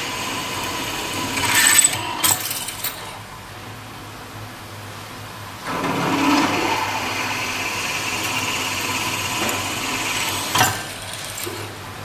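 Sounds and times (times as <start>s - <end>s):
drill cutting into metal: 0.0s - 3.0s, 6.2s - 11.7s
machine humming: 0.0s - 3.9s, 5.6s - 12.0s.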